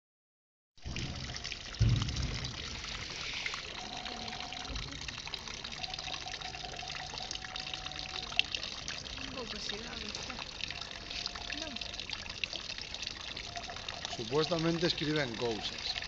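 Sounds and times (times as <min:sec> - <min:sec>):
loud low thump: 0:00.8 - 0:03.2
fountain water pouring into pool: 0:00.8 - 0:16.0.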